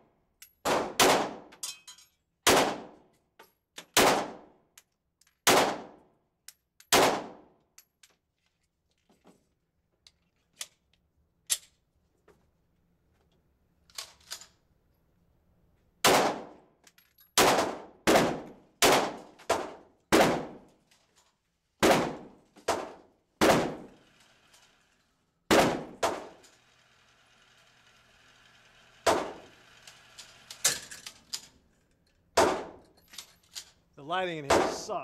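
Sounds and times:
pistol shots indoors: 0.6s - 1.6s, 2.4s - 3.1s, 3.9s - 4.7s, 5.4s - 6.2s, 6.9s - 7.6s, 16.0s - 16.7s, 17.4s - 20.7s, 21.8s - 23.9s, 25.5s - 26.4s, 32.4s - 32.8s, 34.5s - 34.8s.

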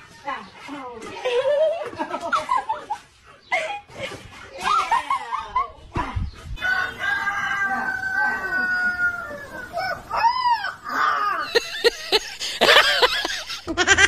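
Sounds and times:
puppy howling: 6.6s - 11.6s.

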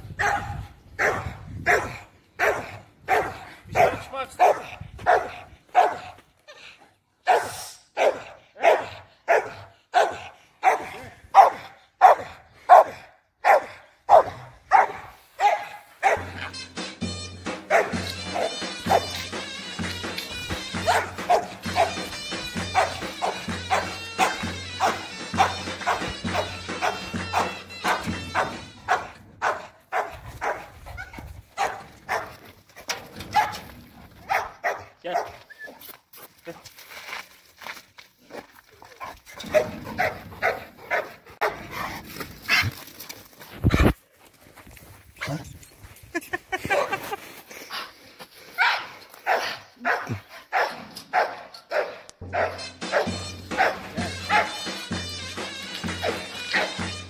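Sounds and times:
dog barking: 0.2s - 6.2s, 7.2s - 16.4s, 17.7s - 19.2s, 20.8s - 22.1s, 22.7s - 32.4s, 33.2s - 33.6s, 34.2s - 35.4s, 39.4s - 41.6s, 48.6s - 54.7s, 56.0s - 56.8s.

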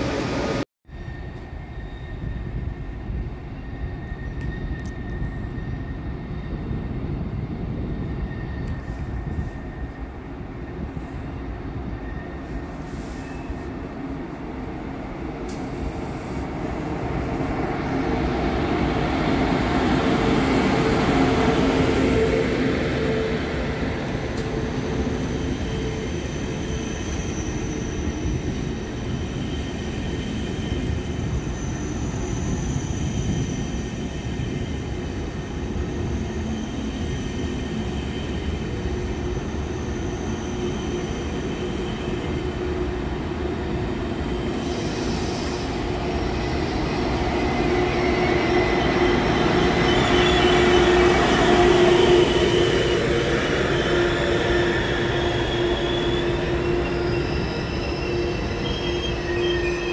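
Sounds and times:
train low hum: 0.0s - 59.9s
high-pitched wheel squeal: 47.4s - 59.9s.

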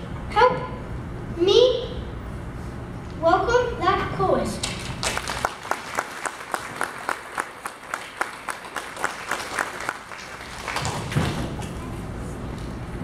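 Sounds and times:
audience applauding: 4.9s - 11.4s.

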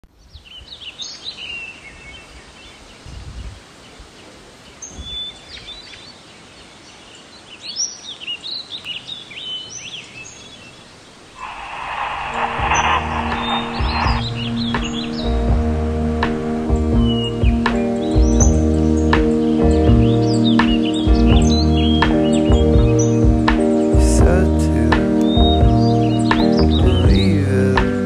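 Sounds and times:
small birds chirping: 0.2s - 11.6s, 17.0s - 24.0s
radio static hiss: 11.2s - 16.6s.

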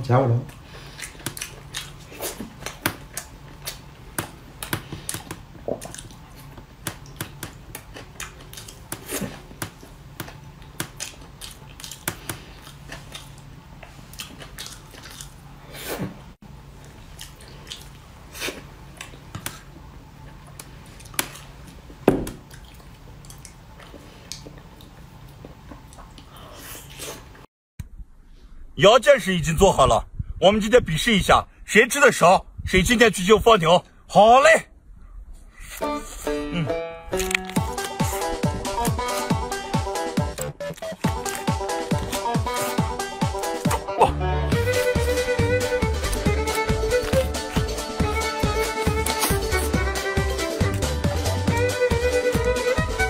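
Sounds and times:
person chewing with mouth smacks: 0.5s - 3.9s, 4.6s - 16.0s, 16.8s - 27.3s, 40.3s - 44.0s, 44.6s - 51.4s.

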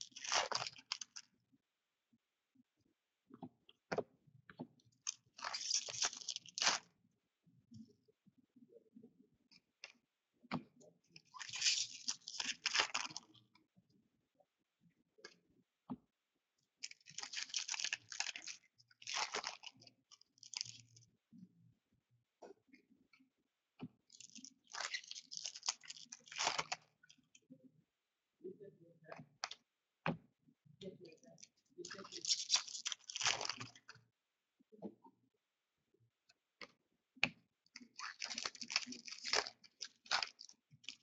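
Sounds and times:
card pack wrappers crinkling: 5.4s - 6.8s, 11.4s - 13.2s, 16.8s - 19.7s, 24.2s - 26.8s, 31.9s - 33.8s, 38.0s - 41.0s.

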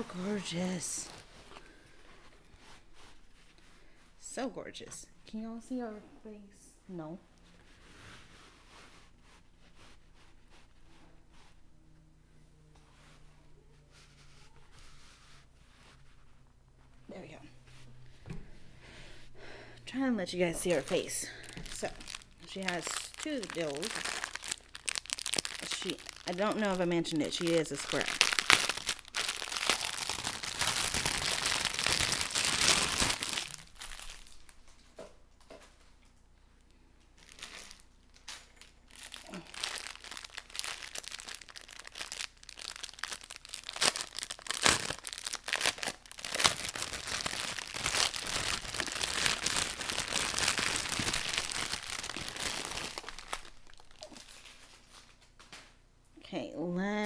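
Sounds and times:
plastic bags crinkling: 0.0s - 2.1s, 20.3s - 34.9s, 37.2s - 55.6s.

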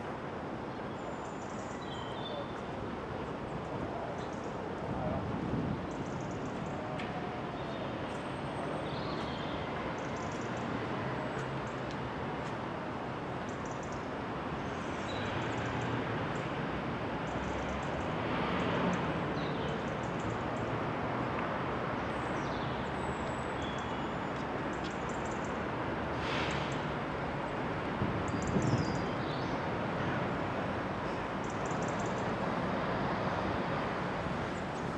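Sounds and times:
distant city and railway rumble: 0.0s - 34.9s
small birds chirping: 31.1s - 32.3s.

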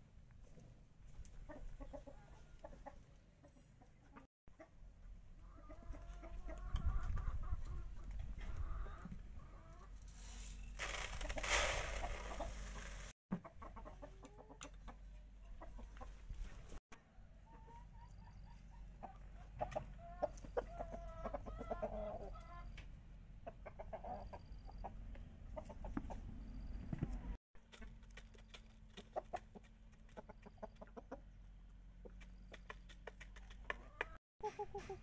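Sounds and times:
chickens clucking: 0.4s - 10.1s, 10.9s - 35.0s
grain poured into plastic bucket: 10.8s - 13.1s.

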